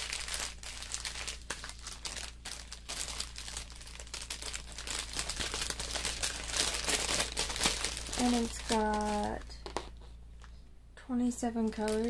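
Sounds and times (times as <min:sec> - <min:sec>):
plastic packaging crinkling: 0:00.0 - 0:10.5, 0:11.6 - 0:12.0.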